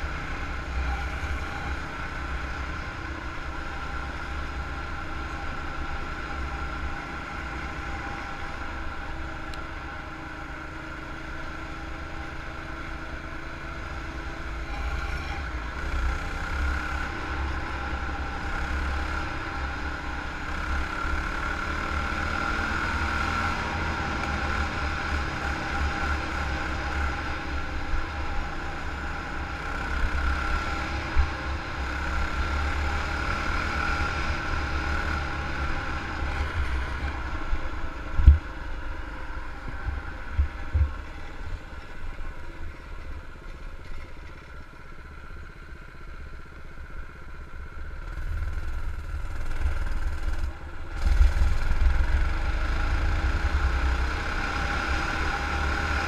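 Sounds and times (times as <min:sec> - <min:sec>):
wind rumbling on microphone: 0:37.9 - 0:38.9
small engine running: 0:47.2 - 0:56.0.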